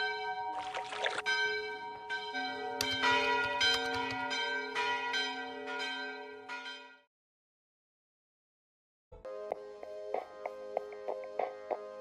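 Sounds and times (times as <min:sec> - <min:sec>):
ringing bell-like chimes: 0:00.0 - 0:07.1
splash into water: 0:00.6 - 0:01.3.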